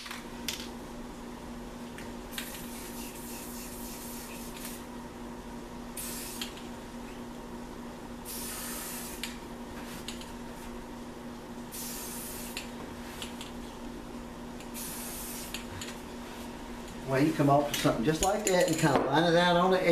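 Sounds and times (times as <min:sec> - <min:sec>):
steady low hum: 0:00.0 - 0:19.9
spray can hissing: 0:02.3 - 0:04.9, 0:06.0 - 0:06.6, 0:08.3 - 0:09.4, 0:11.7 - 0:12.7, 0:14.7 - 0:15.7.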